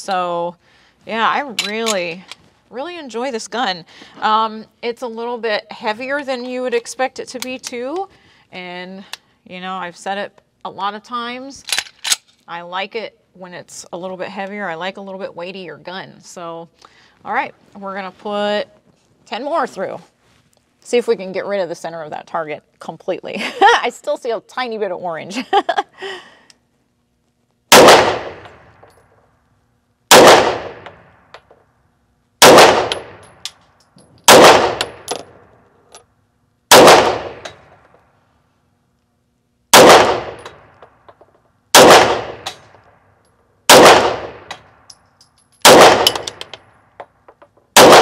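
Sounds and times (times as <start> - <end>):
pistol shots with ringing decay: 27.7 - 28.6, 30.1 - 31.0, 32.4 - 33.3, 34.3 - 35.2, 36.7 - 37.6, 39.8 - 40.6, 41.8 - 42.6, 43.7 - 44.5, 45.6 - 46.4, 47.8 - 48.0.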